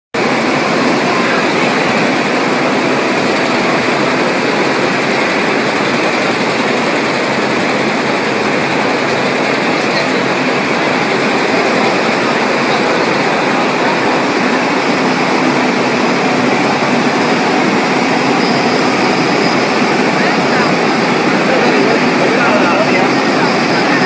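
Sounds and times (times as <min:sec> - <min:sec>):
laser machine rushing noise: 0:00.2 - 0:24.0
thin high-pitched whine: 0:00.2 - 0:24.0.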